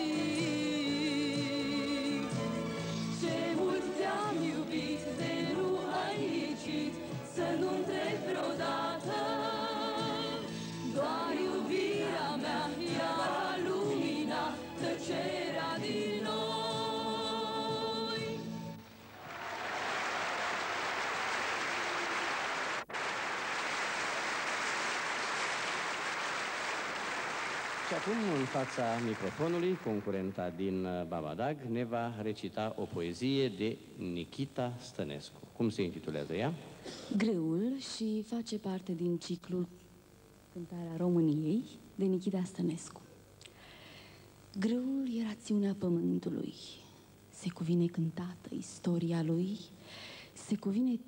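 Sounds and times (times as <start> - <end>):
backing choir: 3.1 - 30.2
audience applauding: 19.1 - 30.6.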